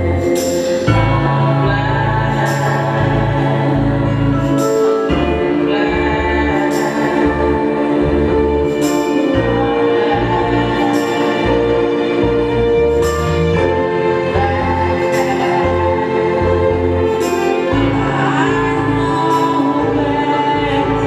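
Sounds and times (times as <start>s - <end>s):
tango music: 0.0s - 21.0s.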